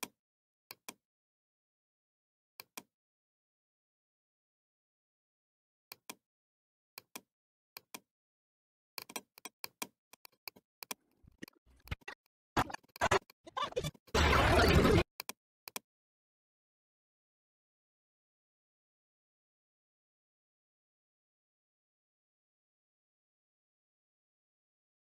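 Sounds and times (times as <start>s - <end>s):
computer mouse clicking: 9.0s - 12.1s.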